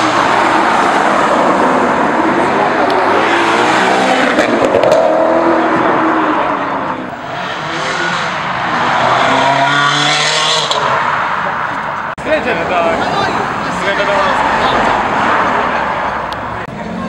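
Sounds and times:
car engine revving: 0.0 - 12.1.

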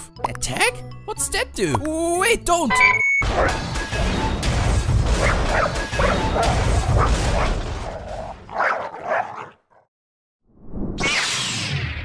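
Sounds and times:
dog barking and yipping: 5.2 - 7.5, 8.5 - 9.6.

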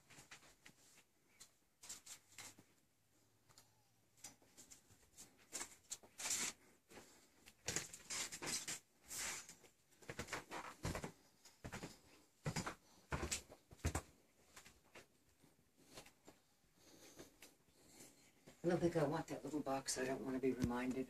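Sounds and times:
rustling: 0.0 - 2.9, 4.2 - 18.7
footsteps soft scuffs: 9.0 - 16.4.

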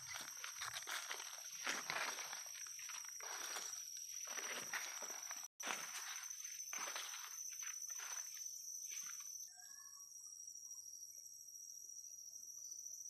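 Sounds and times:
footsteps through leaf litter: 0.0 - 8.3
high-pitched insect drone: 0.0 - 13.0
faint chirps: 6.8 - 11.5.

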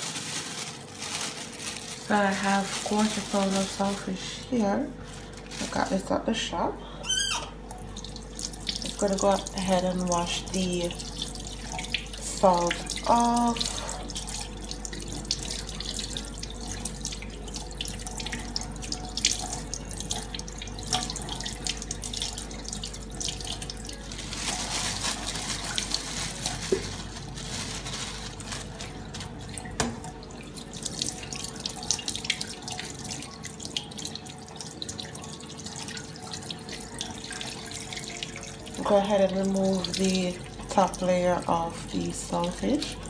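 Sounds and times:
hands rubbing fish under water: 24.2 - 29.4
tap running into steel sink: 29.8 - 30.1.

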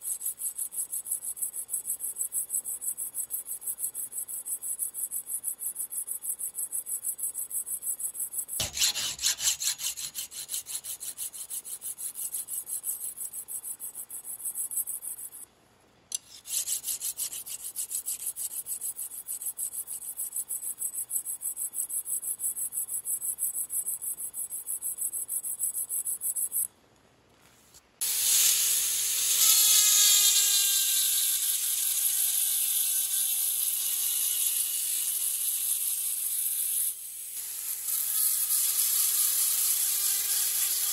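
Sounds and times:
file rasping on steel: 8.5 - 13.7, 16.1 - 20.6, 29.2 - 40.9
rotary tool grinding whine: 28.0 - 40.9.

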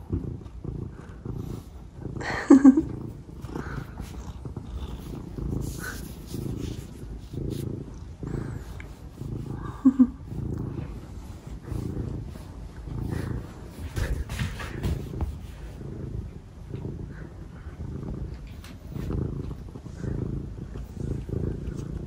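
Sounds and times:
cat purring: 0.0 - 22.0.

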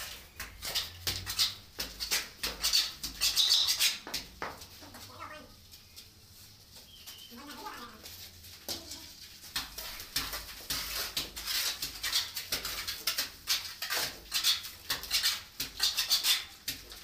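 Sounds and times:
wet mortar slapping: 0.0 - 4.7, 8.8 - 17.0.

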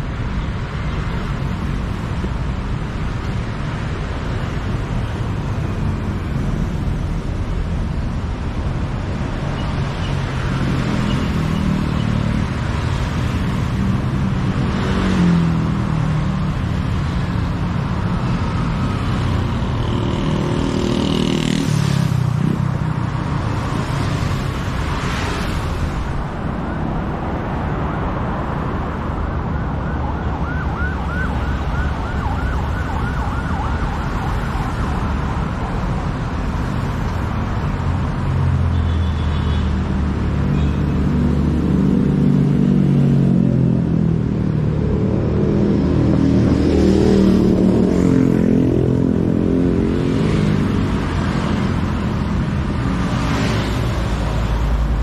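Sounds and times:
heavy road traffic: 0.0 - 55.0
siren warbling: 29.2 - 35.2.

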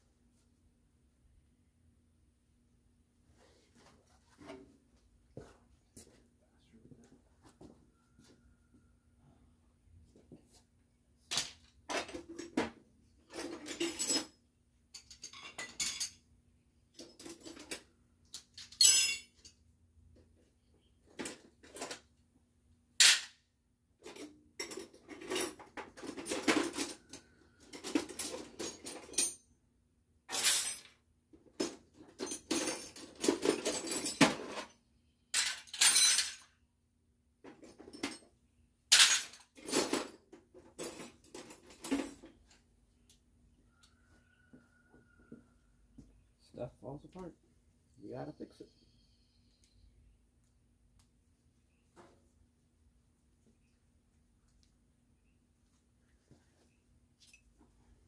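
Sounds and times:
metal tools clanking: 13.2 - 16.2, 17.0 - 19.6
faint hum: 43.1 - 51.9.

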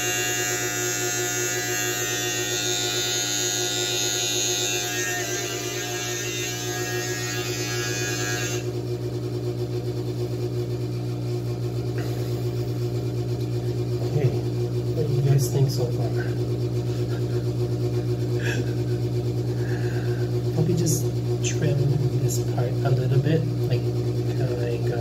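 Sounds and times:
beard trimmer buzzing: 0.0 - 8.8, 18.3 - 20.3.

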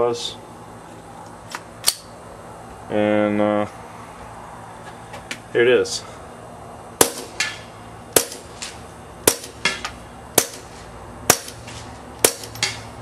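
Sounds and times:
suppressed pistol shots: 7.0 - 7.6
bullet hitting target: 7.0 - 10.7, 11.3 - 12.9.

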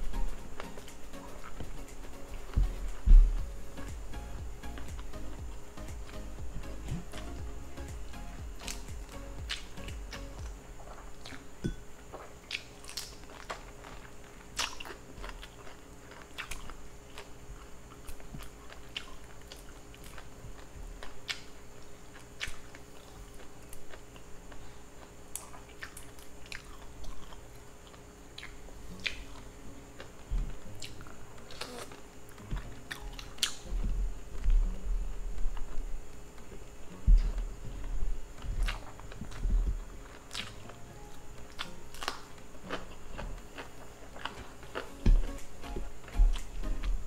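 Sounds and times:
chewing: 9.5 - 33.7, 35.5 - 40.8, 41.5 - 45.5.

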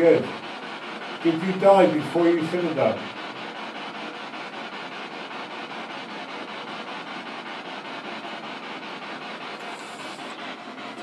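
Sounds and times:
steady hiss with fast flutter: 9.2 - 11.0.

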